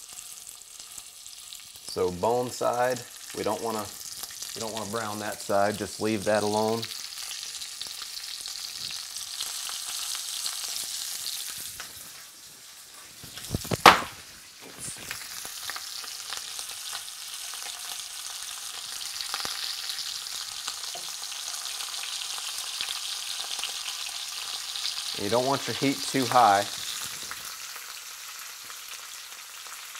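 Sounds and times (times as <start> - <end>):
meat sizzling in fat: 0.0 - 29.9
loud knock: 13.8 - 14.1.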